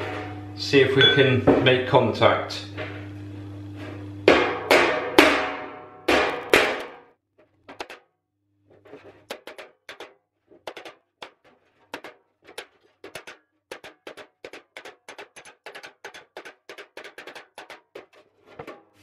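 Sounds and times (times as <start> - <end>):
file striking steel panel: 4.2 - 8.1, 8.8 - 19.0.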